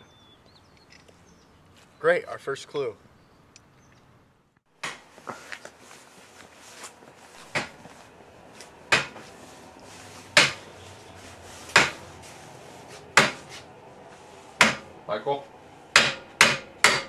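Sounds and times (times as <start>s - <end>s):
hammer striking workbench: 4.8s - 5.1s, 7.5s - 7.8s, 8.9s - 9.2s, 10.3s - 10.6s, 11.7s - 12.0s, 13.2s - 13.6s, 14.6s - 14.9s, 15.9s - 17.0s.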